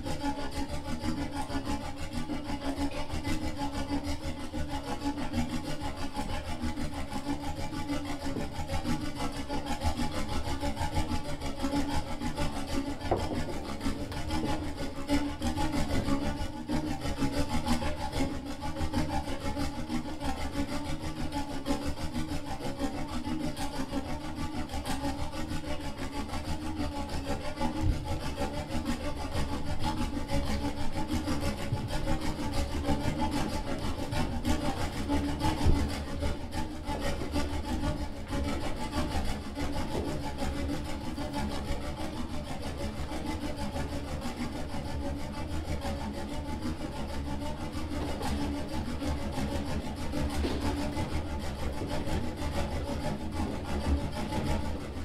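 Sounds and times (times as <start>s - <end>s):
hands scraping accordion body: 4.8s - 18.4s, 24.7s - 44.6s, 45.2s - 55.0s.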